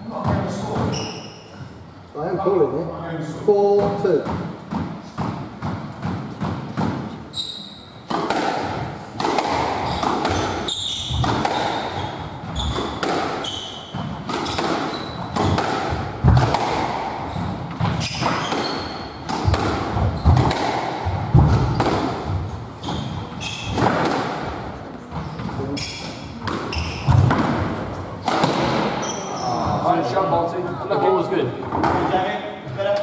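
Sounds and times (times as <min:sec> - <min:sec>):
shoes squeaking on wooden floor: 0:00.1 - 0:01.8, 0:07.2 - 0:08.1, 0:09.8 - 0:15.6, 0:17.2 - 0:24.0, 0:24.9 - 0:29.9
squash ball cracking off rackets: 0:08.0 - 0:24.6, 0:26.0 - 0:29.1.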